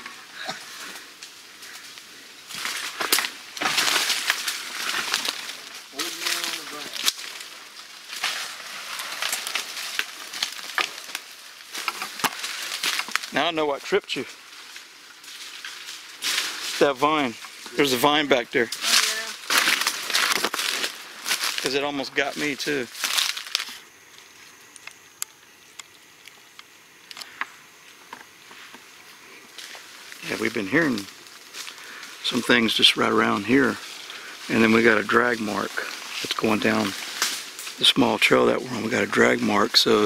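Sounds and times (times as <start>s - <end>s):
high-pitched insect drone: 0.0s - 40.0s
footsteps through dry leaves: 0.6s - 13.4s, 14.3s - 18.0s, 18.7s - 23.9s, 29.5s - 38.0s
twigs snapping: 0.9s - 13.4s, 18.7s - 21.7s, 23.0s - 23.8s, 35.7s - 37.8s.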